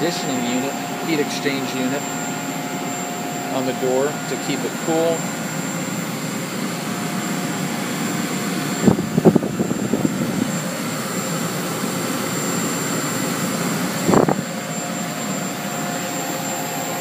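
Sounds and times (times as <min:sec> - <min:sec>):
fan whirring: 0:00.0 - 0:17.0.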